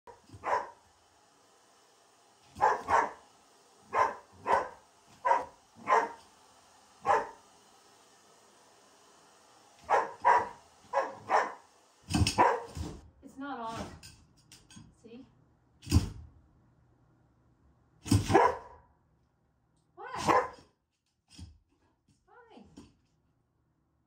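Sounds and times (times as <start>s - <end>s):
dog barking sharply: 0.4s - 0.8s, 2.6s - 3.2s, 3.9s - 6.2s, 7.0s - 7.4s, 9.8s - 11.6s, 12.3s - 12.8s, 18.2s - 18.8s, 20.2s - 20.6s.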